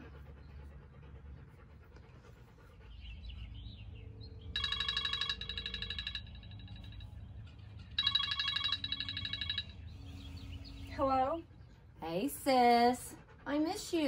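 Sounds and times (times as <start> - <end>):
phone bell ringtone trilling: 4.6 - 7.1, 8.0 - 9.9.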